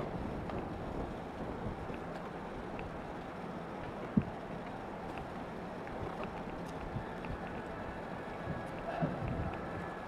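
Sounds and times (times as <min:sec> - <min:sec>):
wind rumble on microphone: 0:00.0 - 0:03.2, 0:03.8 - 0:04.4, 0:05.1 - 0:10.0
ballpark crowd noise: 0:05.9 - 0:10.0.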